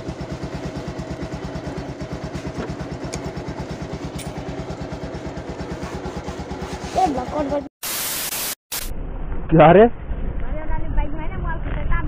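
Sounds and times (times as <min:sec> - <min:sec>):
motorcycle engine idling: 0:00.0 - 0:07.6.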